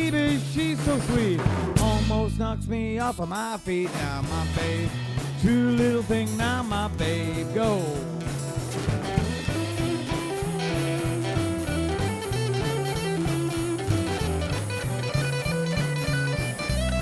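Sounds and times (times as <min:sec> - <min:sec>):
bass line: 0:00.0 - 0:17.0
blues band playing: 0:00.0 - 0:17.0
drums: 0:00.0 - 0:17.0
lead guitar: 0:04.2 - 0:17.0.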